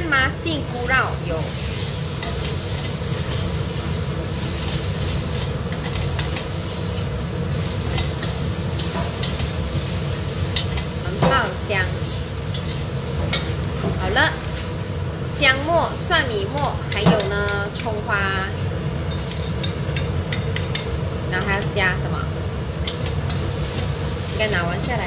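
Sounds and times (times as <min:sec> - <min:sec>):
food sizzling in hot oil: 0:00.0 - 0:25.0
metal spatula scraping wok: 0:01.5 - 0:13.6.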